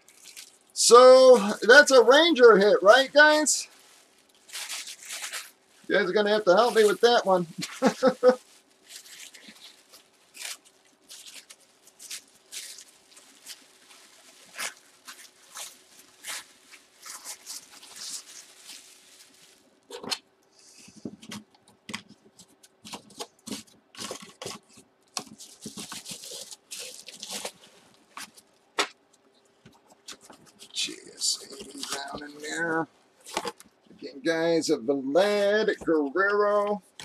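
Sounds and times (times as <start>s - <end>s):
paper crinkling and rustling: 1.6s - 20.2s, 20.9s - 34.0s.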